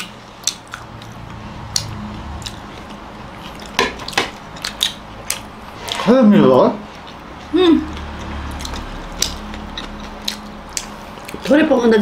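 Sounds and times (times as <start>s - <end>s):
mouth clicks and smacks: 0.0s - 1.1s, 3.5s - 5.5s, 8.5s - 11.4s
people chewing: 0.0s - 11.6s.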